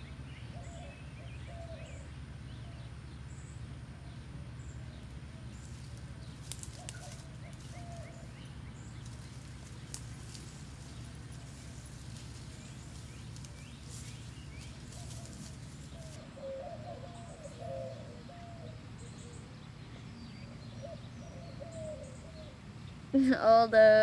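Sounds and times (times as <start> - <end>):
dove cooing: 0.0 - 2.9, 3.8 - 19.7, 20.5 - 22.6
faint rustling clicks: 5.9 - 8.1, 9.0 - 16.2.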